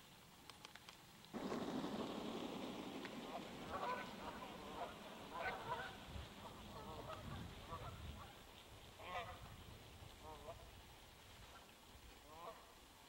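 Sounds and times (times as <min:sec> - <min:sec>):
geese honking: 0:01.4 - 0:09.5.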